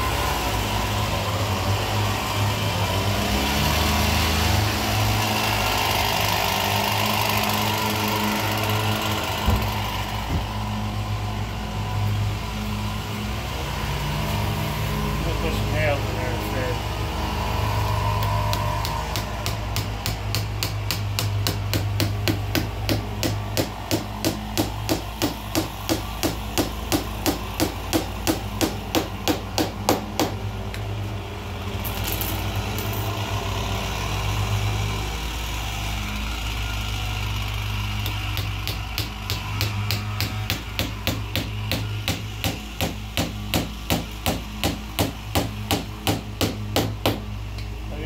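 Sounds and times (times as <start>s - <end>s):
hammer tapping on wood: 18.2s - 30.4s, 38.0s - 47.3s.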